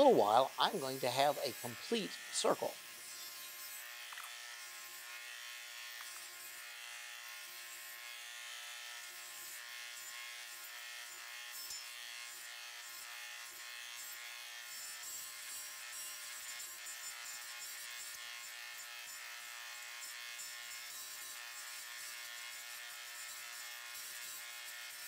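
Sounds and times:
table saw running: 0:00.0 - 0:08.0.

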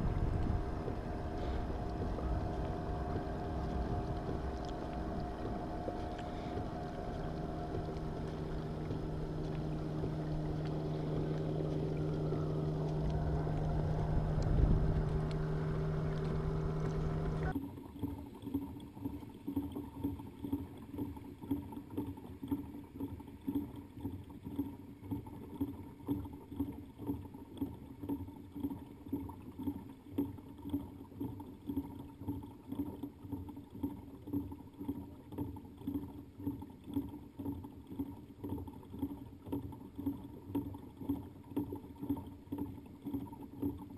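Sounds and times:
loud steady hum: 0:00.0 - 0:17.6
kayak pedal drive whirring: 0:00.0 - 0:43.9.

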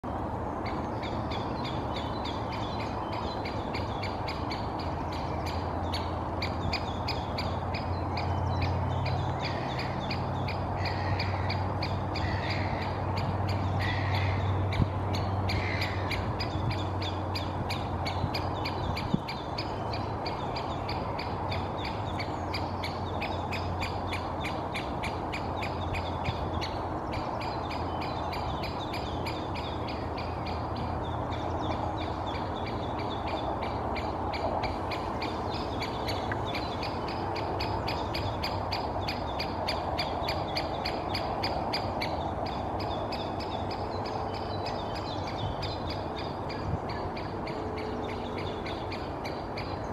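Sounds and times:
woodpecker calling: 0:00.6 - 0:49.9.

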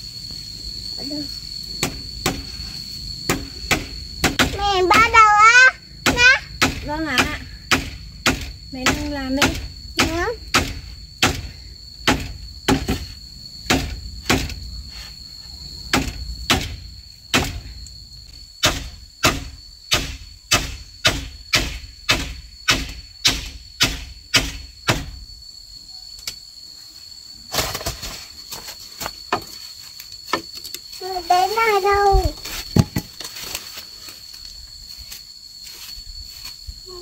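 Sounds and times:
high-pitched insect drone: 0:00.0 - 0:37.0
tool knocking on bamboo: 0:32.7 - 0:33.1.

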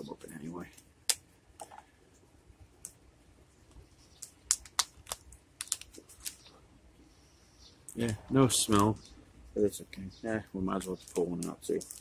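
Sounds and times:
plastic packet crinkling: 0:04.1 - 0:06.5, 0:10.8 - 0:12.0.

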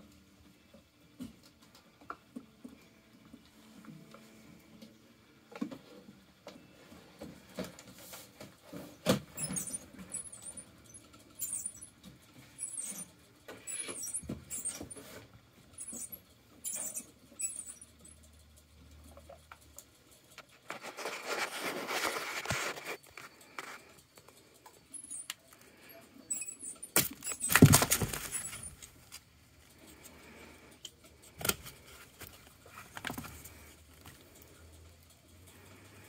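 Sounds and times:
rat squeaking: 0:09.3 - 0:19.5, 0:22.8 - 0:29.1
handling scrapes on cardboard: 0:20.7 - 0:23.8
cardboard rustling: 0:27.1 - 0:29.3.

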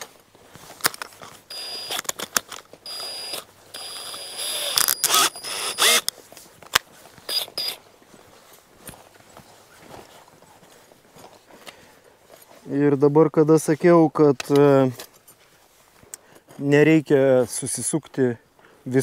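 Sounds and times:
drill-driver whining: 0:01.5 - 0:02.2, 0:02.8 - 0:06.1, 0:07.3 - 0:07.8.

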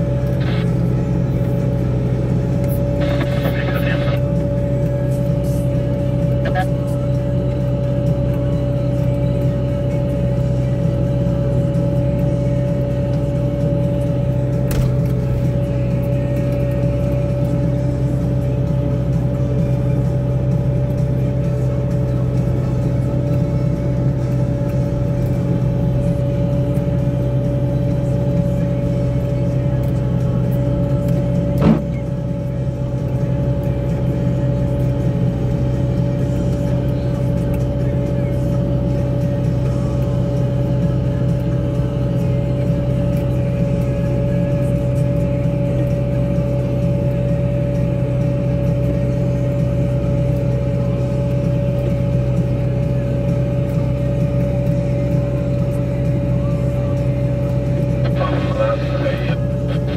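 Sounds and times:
loader engine drone: 0:00.0 - 0:59.9
steady high tone: 0:02.8 - 0:04.3.

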